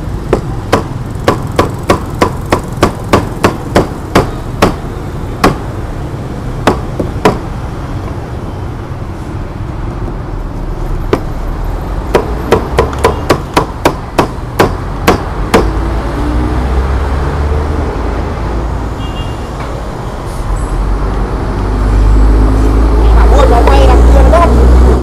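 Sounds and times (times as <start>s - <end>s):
traffic rumble: 0.0s - 25.0s
cleaver chopping on wooden block: 0.2s - 4.8s, 5.4s - 5.7s, 6.6s - 7.5s, 12.1s - 15.8s.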